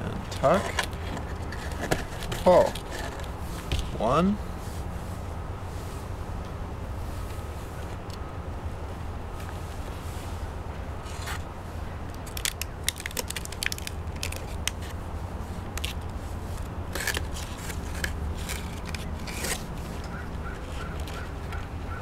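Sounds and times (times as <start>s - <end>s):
plastic jug crinkling: 12.2s - 14.8s.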